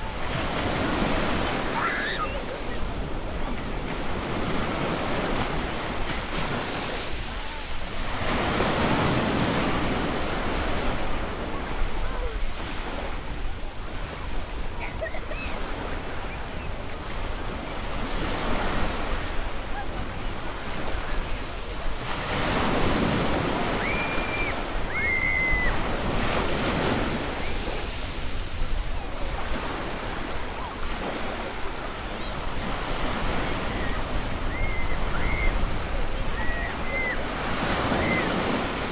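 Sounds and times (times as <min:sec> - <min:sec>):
beach surf washing in: 0:00.0 - 0:38.9
children calling: 0:01.5 - 0:02.9, 0:23.6 - 0:25.9, 0:33.4 - 0:38.6.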